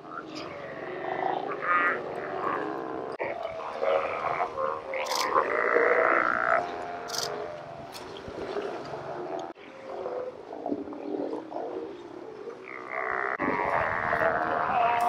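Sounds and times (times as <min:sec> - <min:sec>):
sea lions calling: 0:00.0 - 0:15.0.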